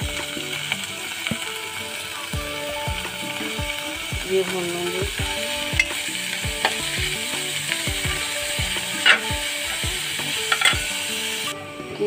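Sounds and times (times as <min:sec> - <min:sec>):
meat sizzling in a pot: 0:00.0 - 0:11.6
music with steady bass beat: 0:00.0 - 0:12.0
spoon clinking and scraping pot: 0:08.9 - 0:10.9.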